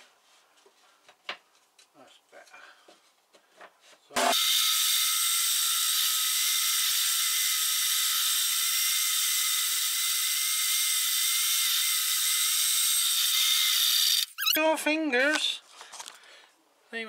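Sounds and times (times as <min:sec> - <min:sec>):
bandsaw cutting board: 0:04.2 - 0:14.6.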